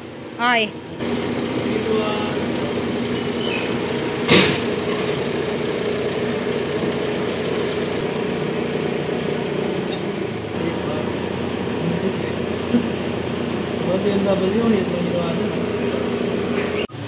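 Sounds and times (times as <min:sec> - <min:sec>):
engine idle hum: 0:00.0 - 0:17.0
motorcycle clunking onto metal rack: 0:04.2 - 0:05.2.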